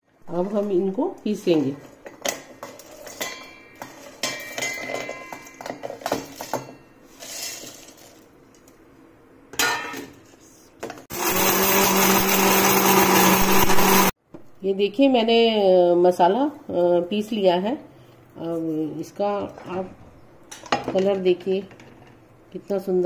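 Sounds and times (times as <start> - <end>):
electric mixer grinder running: 11.1 - 14.2.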